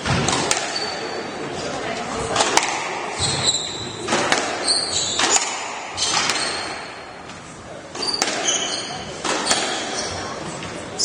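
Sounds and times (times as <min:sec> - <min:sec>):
squash ball cracking off rackets: 0:00.0 - 0:00.9, 0:02.3 - 0:03.4, 0:04.0 - 0:07.0, 0:07.9 - 0:10.1
shoes squeaking on wooden floor: 0:03.2 - 0:11.0.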